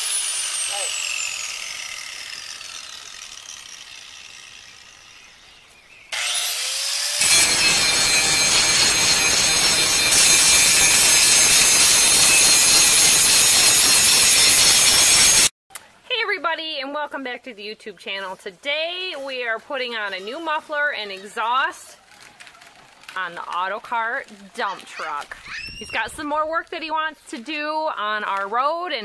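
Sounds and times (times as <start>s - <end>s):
angle grinder whine: 0.0s - 5.5s, 6.1s - 15.5s
angle grinder grinding steel: 0.0s - 15.5s.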